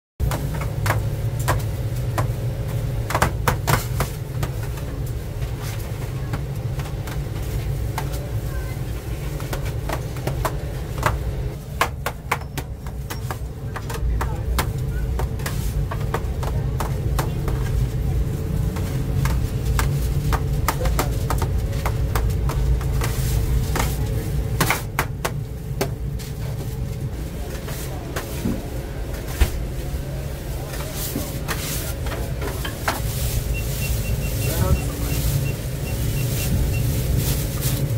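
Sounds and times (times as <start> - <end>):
steady low rumble: 12.7 - 37.9.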